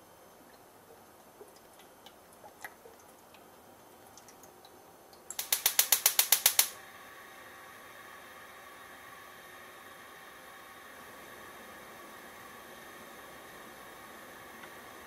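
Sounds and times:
gas stove igniter clicking: 5.3 - 6.8
gas flame hissing: 5.3 - 15.0.

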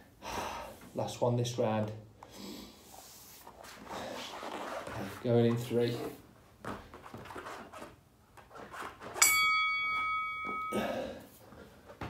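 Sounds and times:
soft movement sounds: 2.7 - 12.0
bell-like chime: 9.2 - 11.1.

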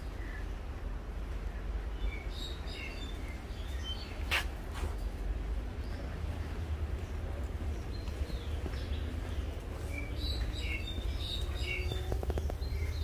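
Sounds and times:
small birds chirping: 1.4 - 4.5, 5.8 - 13.0.

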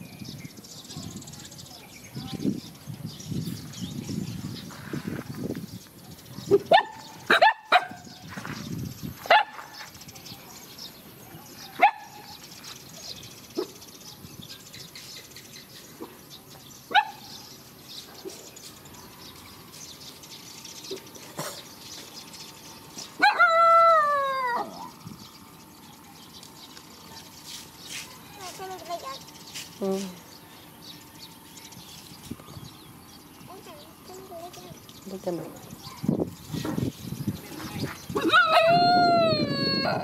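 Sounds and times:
dog barking: 6.3 - 8.1, 9.3 - 9.7, 11.8 - 12.2, 16.9 - 17.3.

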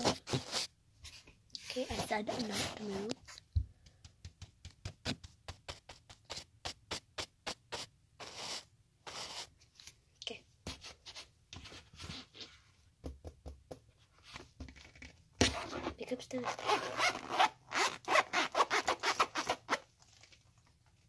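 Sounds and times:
scratchy rubbing on phone: 0.0 - 3.5, 4.8 - 9.6.

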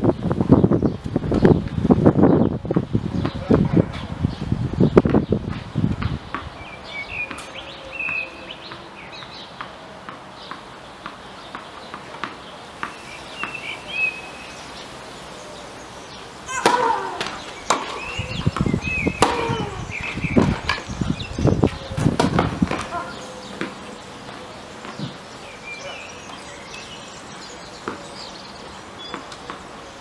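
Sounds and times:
small birds chirping: 0.0 - 30.0
tennis ball hits: 5.1 - 14.1, 16.5 - 21.0, 21.7 - 23.8.

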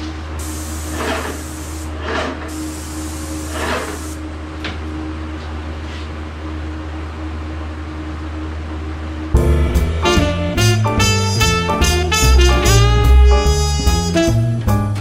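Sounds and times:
exhaust fans humming: 0.0 - 15.0
paint sprayer hissing: 0.4 - 4.2.

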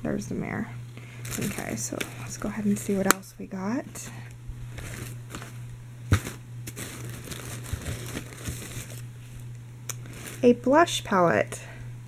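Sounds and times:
fabric bag and packaging rustling: 1.1 - 3.0, 4.7 - 10.6.

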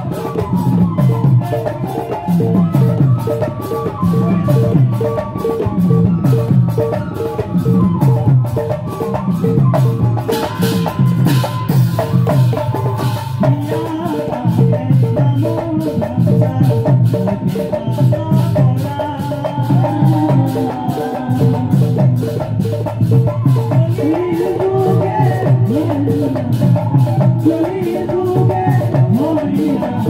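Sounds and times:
barrel drums and cymbal rhythm: 0.0 - 30.0
man singing: 12.5 - 30.0.

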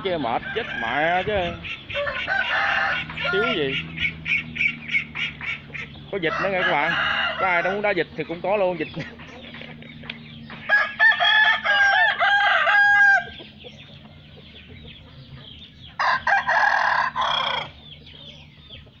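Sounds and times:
rooster crowing: 0.3 - 3.7, 6.2 - 8.0, 10.6 - 13.4, 16.0 - 17.8.

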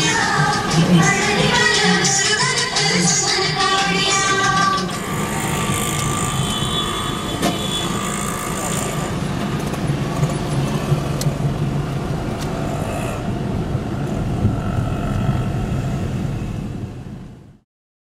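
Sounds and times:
low car engine hum: 0.0 - 17.6
road noise: 0.0 - 17.6.

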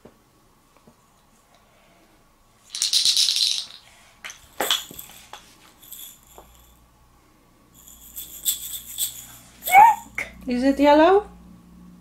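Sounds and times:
wooden toy rattling: 2.7 - 6.7, 7.8 - 10.2.

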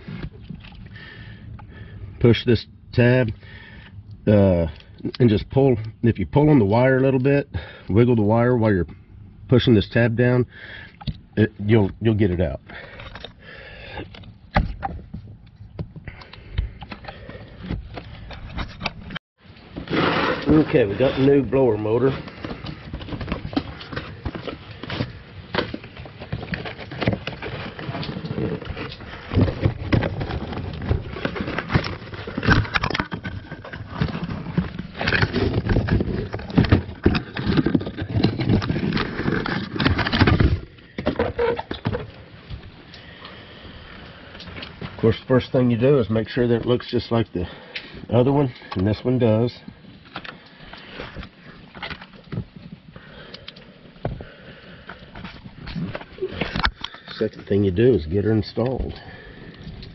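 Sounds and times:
knocks and clunks: 14.0 - 19.2
cardboard box rustling and scraping: 17.5 - 42.7.

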